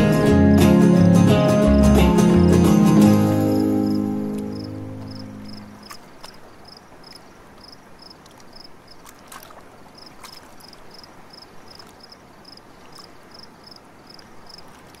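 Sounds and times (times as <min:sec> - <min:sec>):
flowing river water: 0:00.0 - 0:15.0
insect chirping: 0:03.3 - 0:09.0, 0:10.0 - 0:15.0.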